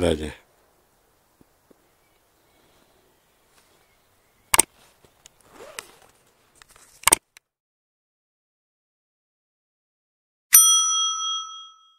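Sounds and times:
faint rustling: 1.3s - 7.0s.

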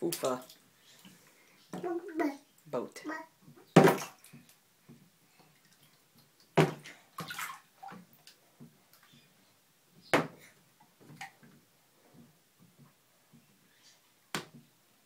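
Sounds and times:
bathwater splashing: 3.7s - 4.5s, 5.5s - 8.4s
toy boat hitting bathtub: 3.8s - 4.2s.

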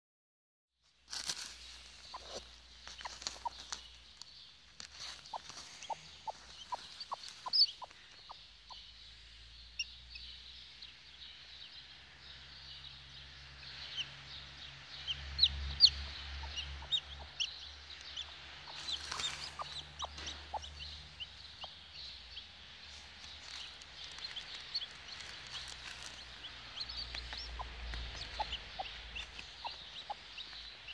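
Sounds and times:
knocks and rustles of nest: 1.1s - 4.0s
chicks peeping: 1.2s - 30.9s
hen clucking: 2.0s - 8.8s, 15.1s - 30.9s.

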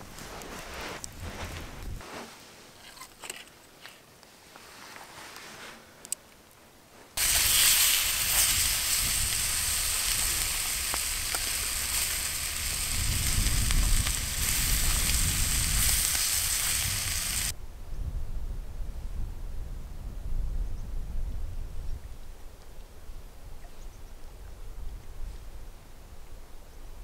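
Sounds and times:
sausages sizzling in a frying pan: 7.2s - 17.6s.

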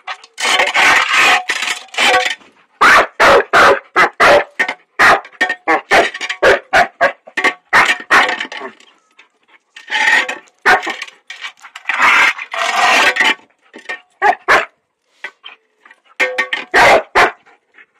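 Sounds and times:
puppy barking and growling: 2.8s - 8.8s, 14.2s - 14.7s, 16.6s - 17.4s.

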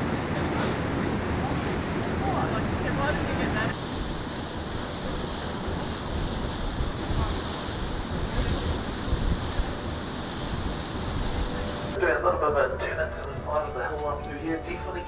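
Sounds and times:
wind buffeting microphone: 0.0s - 12.0s
rushing water: 0.0s - 12.2s.

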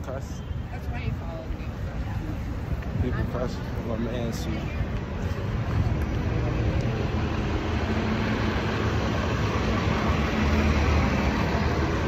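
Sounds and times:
low city rumble: 0.0s - 12.0s.

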